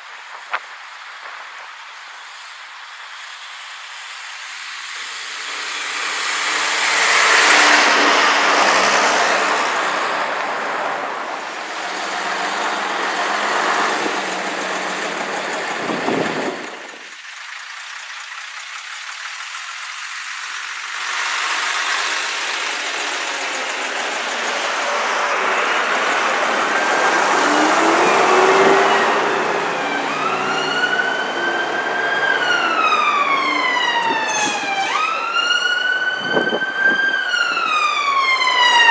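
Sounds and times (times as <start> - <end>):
traffic noise: 0.0 - 38.9
diesel bus engine passing: 2.3 - 38.9
emergency siren wailing: 5.3 - 17.1, 21.2 - 38.9.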